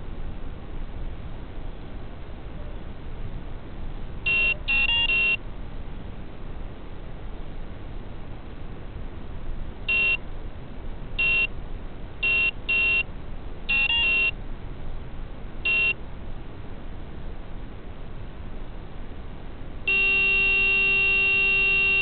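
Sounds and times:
short electronic beeps: 4.3 - 5.4, 9.9 - 10.2, 11.2 - 11.5, 12.2 - 13.1, 13.7 - 14.4, 15.7 - 16.0, 19.9 - 22.0.

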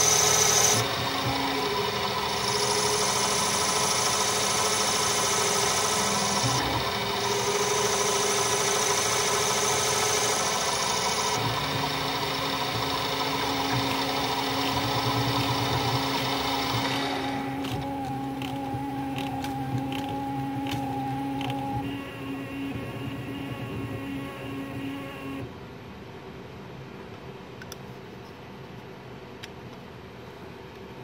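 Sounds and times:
metal lathe humming: 0.0 - 25.3.

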